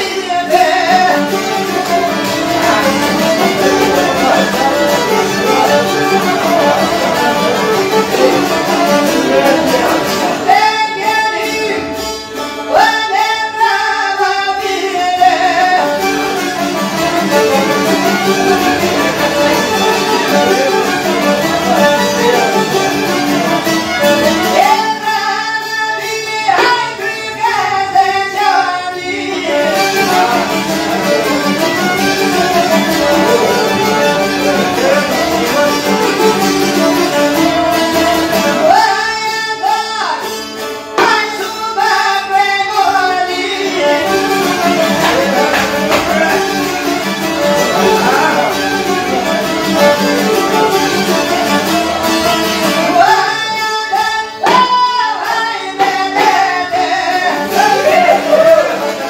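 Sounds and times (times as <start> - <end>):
piano accordion: 0.0 - 10.6, 15.6 - 24.7, 29.1 - 38.7, 43.8 - 53.1
plucked lutes: 0.0 - 59.0
violin: 0.0 - 59.0.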